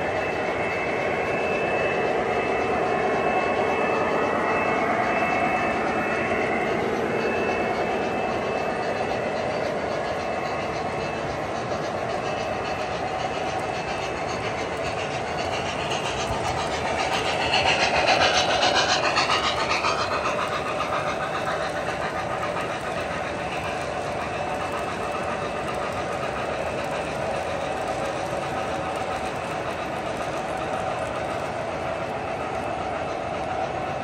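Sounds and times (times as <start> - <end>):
model train whirring: 0.0 - 34.0
light rhythmic clatter: 0.2 - 34.0.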